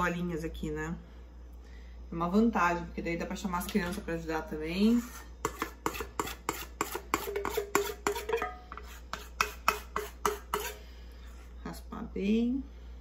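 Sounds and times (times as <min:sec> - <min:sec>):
metal spoon scraping a bowl: 0:04.8 - 0:11.5.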